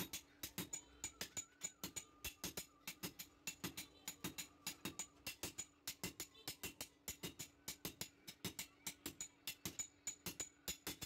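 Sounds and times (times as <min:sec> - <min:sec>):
hammers striking steel on anvil: 0:00.0 - 0:11.0.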